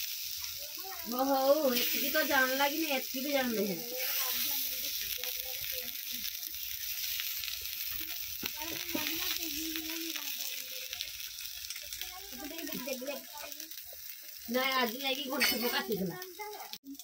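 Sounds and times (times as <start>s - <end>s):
slices sizzling in hot oil: 0.0s - 17.0s.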